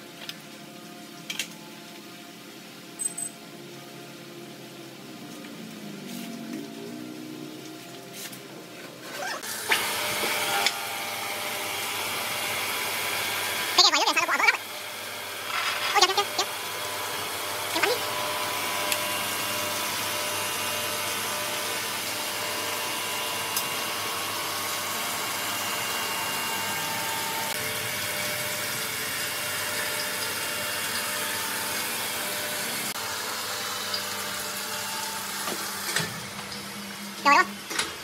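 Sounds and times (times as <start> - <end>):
stone cutting machine running: 9.4 - 36.3.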